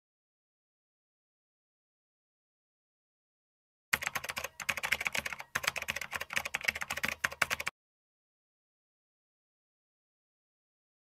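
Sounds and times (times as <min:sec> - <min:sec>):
keyboard typing clicks: 0:04.0 - 0:07.7.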